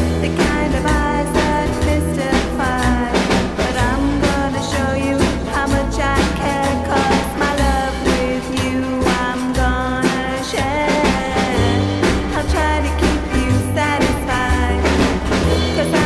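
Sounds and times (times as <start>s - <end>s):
rock and roll music: 0.0s - 16.0s.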